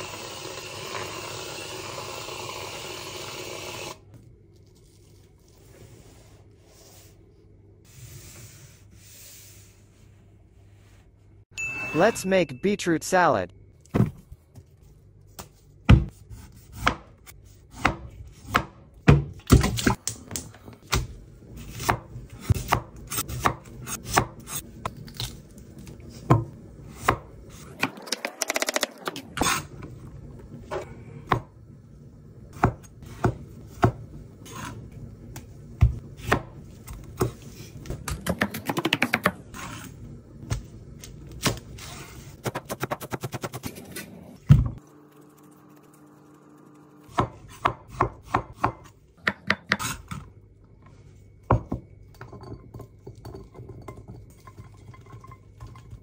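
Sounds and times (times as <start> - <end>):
knife chopping on cutting board: 15.9 - 17.1, 17.7 - 19.7, 32.6 - 34.7, 47.1 - 50.2.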